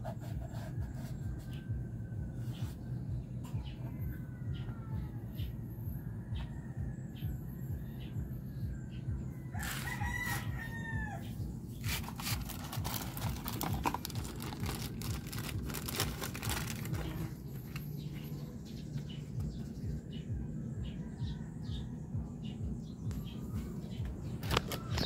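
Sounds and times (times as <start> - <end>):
small birds chirping: 0.0 - 25.0
rooster crowing: 9.2 - 11.5
plastic bag crinkling: 11.8 - 17.8.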